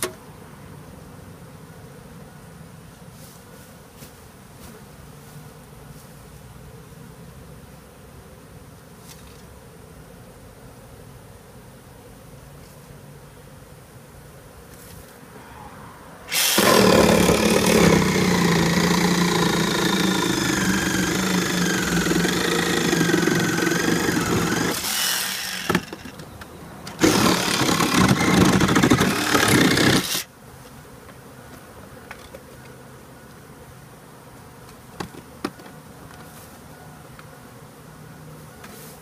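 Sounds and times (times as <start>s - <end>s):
bees buzzing: 0.5s - 39.0s
handheld vacuum whining: 16.3s - 26.2s, 26.9s - 30.3s.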